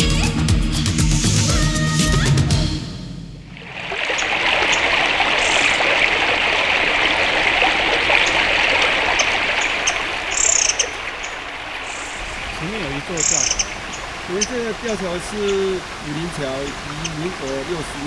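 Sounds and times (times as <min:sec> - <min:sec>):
high bird chirps: 0:09.1 - 0:12.4, 0:13.2 - 0:14.5
dense forest hiss: 0:09.4 - 0:18.0
people's voices: 0:12.6 - 0:13.5, 0:14.3 - 0:18.0.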